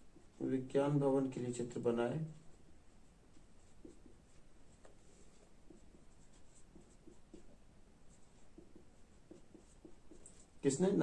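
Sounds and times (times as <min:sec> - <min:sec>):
marker squeaking on whiteboard: 0:02.4 - 0:10.6.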